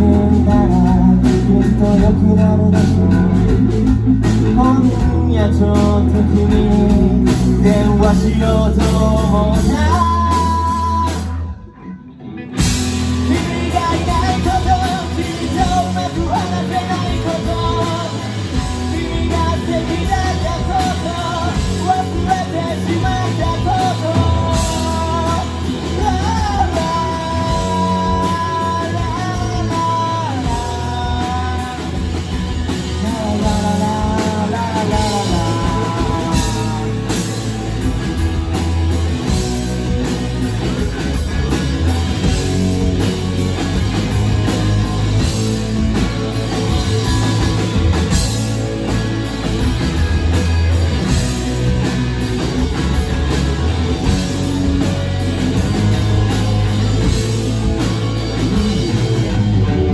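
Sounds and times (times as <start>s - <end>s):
man singing: 0.0s - 12.0s, 13.0s - 37.8s
live rock band playing: 0.0s - 59.9s.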